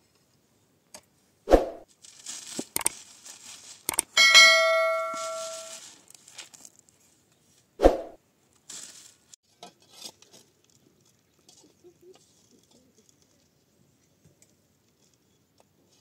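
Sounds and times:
ringing metal clang: 0:04.1 - 0:05.8.

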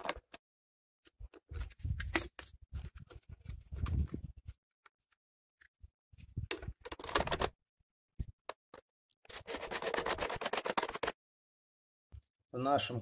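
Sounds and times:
plastic housing scraping and clicking: 0:06.4 - 0:07.6.

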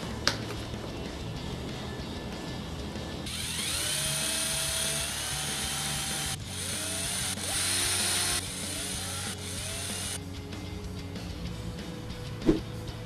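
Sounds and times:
mini drill whining: 0:03.3 - 0:10.2.

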